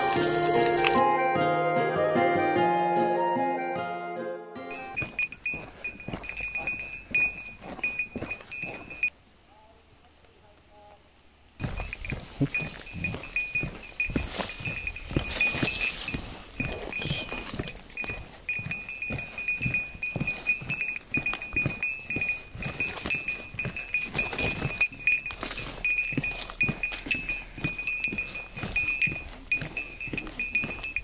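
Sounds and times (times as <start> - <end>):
small bell jingling: 4.7 - 9.2, 11.6 - 31.0
footsteps on wooden boardwalk: 4.8 - 9.1, 11.6 - 31.0.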